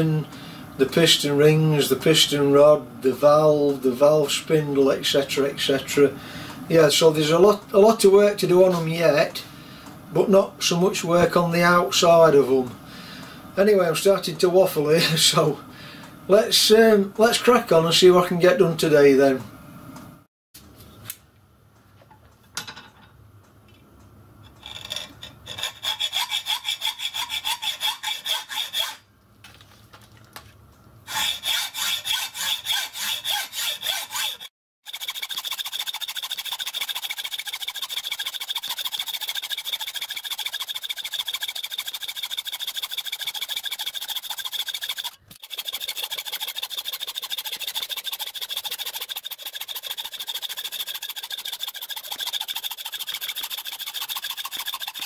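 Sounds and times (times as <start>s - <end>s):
hacksaw cutting metal: 24.5s - 29.0s, 31.1s - 55.0s.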